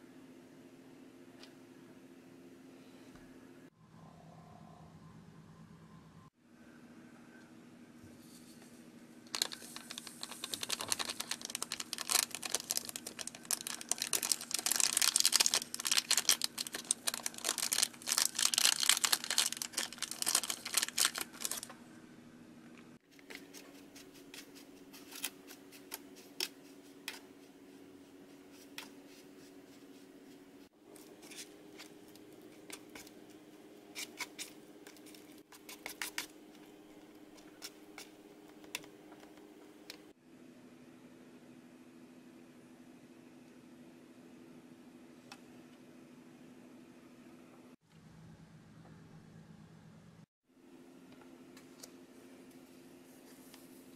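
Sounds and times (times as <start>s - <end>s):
faint steady hum: 0.0s - 53.9s
foil sachet crinkling: 9.3s - 21.7s.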